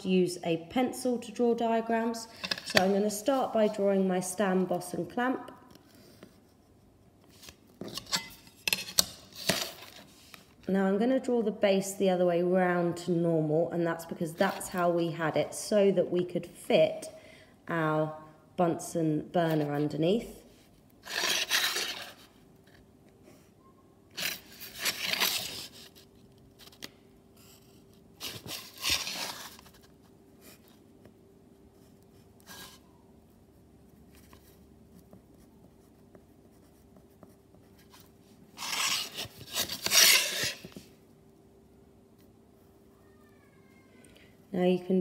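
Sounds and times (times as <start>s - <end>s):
pencil scratching on paper: 34.4s - 39.1s.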